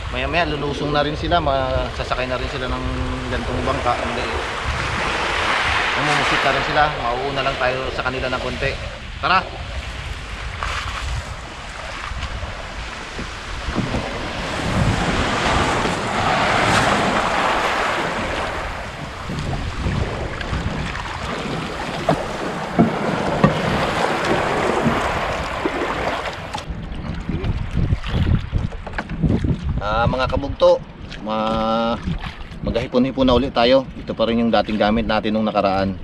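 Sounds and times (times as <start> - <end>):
sea waves washing onto beach: 0.0 - 28.6
wind buffeting microphone: 0.0 - 36.0.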